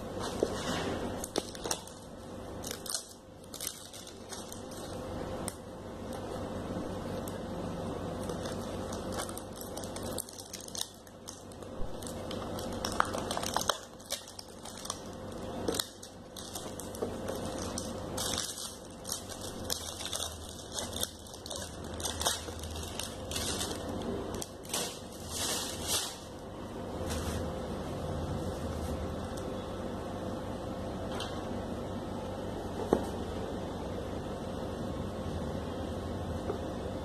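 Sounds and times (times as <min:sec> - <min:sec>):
bubble wrap crinkling: 0:00.0 - 0:27.6
faint steady hum: 0:00.0 - 0:37.0.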